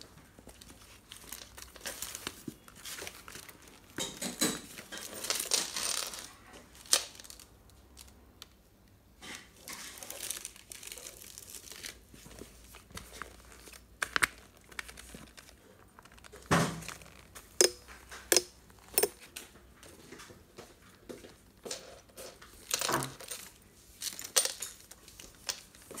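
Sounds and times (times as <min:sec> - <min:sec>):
plastic bag crinkling: 0:00.5 - 0:04.0, 0:04.7 - 0:08.2, 0:09.6 - 0:19.3
sharp clicks and knocks: 0:17.6 - 0:19.2.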